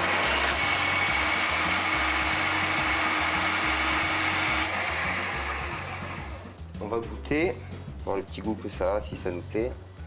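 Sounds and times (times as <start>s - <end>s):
food processor motor whirring: 0.0s - 6.6s.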